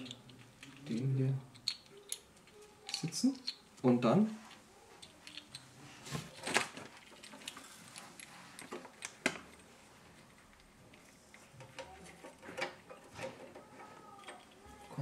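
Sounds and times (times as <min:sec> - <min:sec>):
small parts clicking and tapping: 0:00.0 - 0:15.0.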